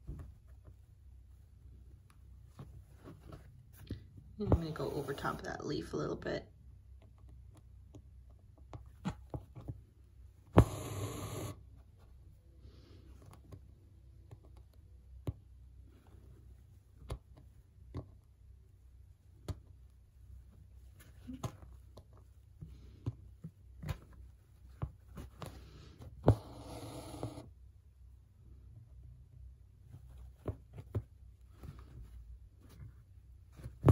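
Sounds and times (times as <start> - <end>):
fabric rustling: 0.0 - 5.4
needle piercing fabric: 10.6 - 11.6.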